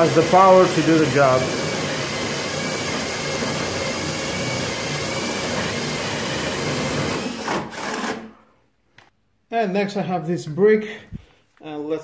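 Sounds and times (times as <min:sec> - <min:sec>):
cordless drill boring into wood: 0:00.0 - 0:08.3.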